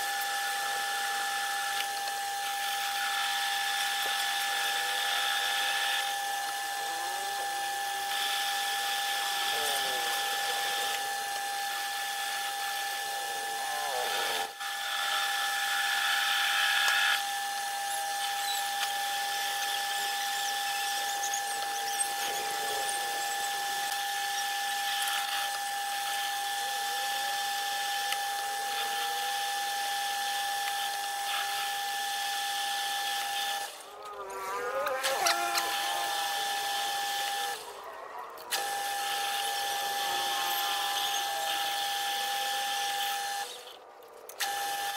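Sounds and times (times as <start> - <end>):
lathe tool scraping metal: 0.0 - 44.9
metal lathe whine: 0.0 - 44.9.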